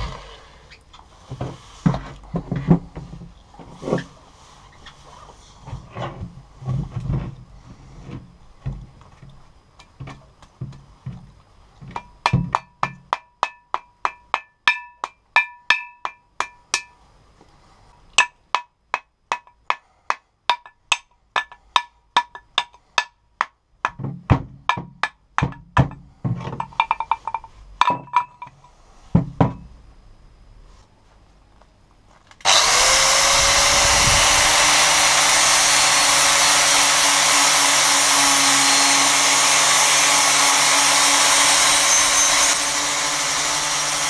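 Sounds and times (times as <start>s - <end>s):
dull wooden thuds: 1.3s - 4.1s, 8.1s - 9.4s, 23.8s - 28.4s, 29.1s - 29.7s
sharp metallic knocks on axe head: 11.9s - 16.9s.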